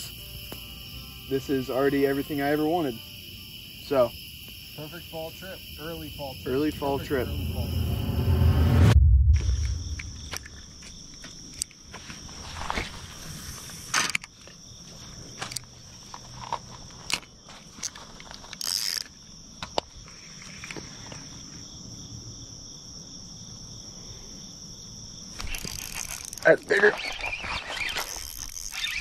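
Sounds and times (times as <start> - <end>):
insects chirring: 0.0 - 29.0
fishing reel clicks and knocks: 18.6 - 19.1, 25.4 - 26.6, 28.0 - 29.0.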